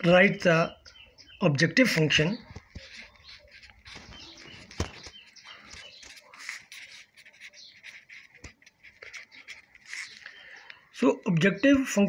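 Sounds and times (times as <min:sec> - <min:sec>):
pencil writing on paper: 0:02.4 - 0:10.4.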